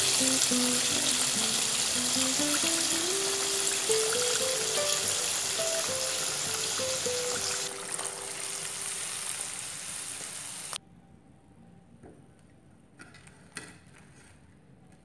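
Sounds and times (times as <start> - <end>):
simple background melody: 0.0 - 9.4
fish sizzling in hot oil: 0.0 - 10.8.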